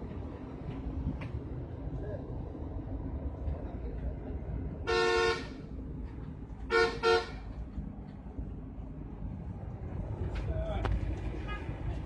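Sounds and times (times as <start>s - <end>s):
bus engine rumble: 0.0s - 12.0s
road noise: 0.0s - 12.0s
vehicle horn toots: 4.8s - 5.6s, 6.7s - 7.5s, 11.4s - 11.8s.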